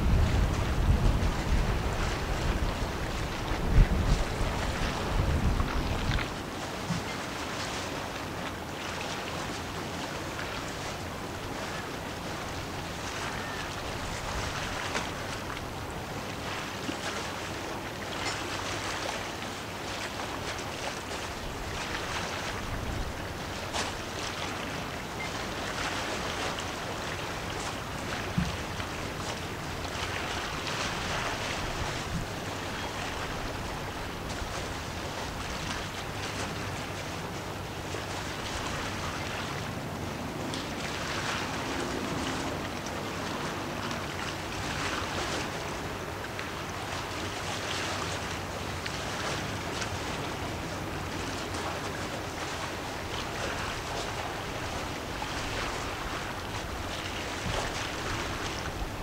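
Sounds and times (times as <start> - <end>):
wind on microphone: 0.0 - 7.5, 20.4 - 46.9, 49.1 - 59.0
waves washing: 0.0 - 59.0.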